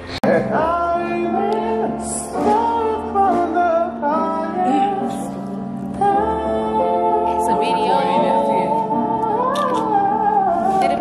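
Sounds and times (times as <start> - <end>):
steady musical accompaniment: 0.0 - 11.0
woman singing: 4.2 - 11.0.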